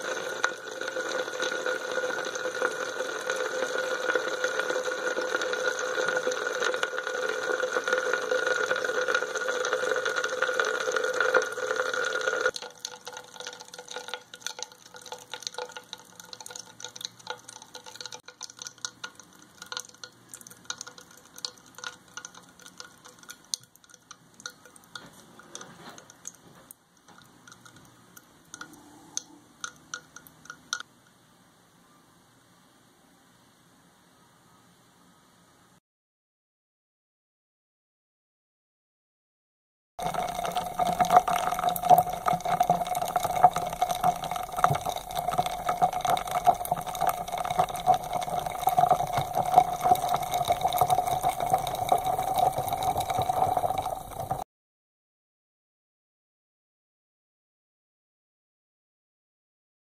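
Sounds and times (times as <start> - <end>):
chemical reaction fizzing crackle: 0.0 - 30.9, 40.0 - 54.4.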